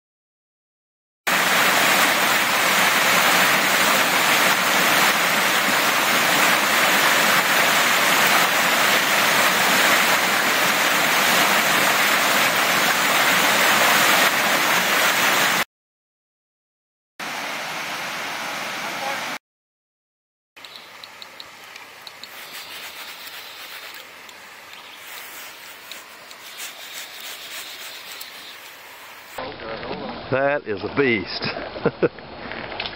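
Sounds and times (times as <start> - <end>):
stream rushing over boulders: 1.3 - 15.6, 17.2 - 19.4, 20.6 - 29.4.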